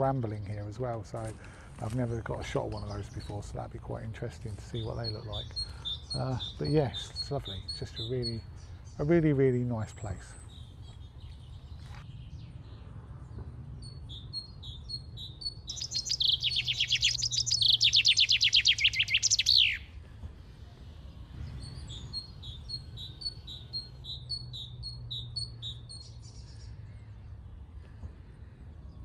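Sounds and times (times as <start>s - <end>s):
chaffinch singing: 1.9s - 12.0s, 13.8s - 20.0s, 20.9s - 26.7s
bird high call notes: 4.8s - 8.8s, 14.1s - 20.0s.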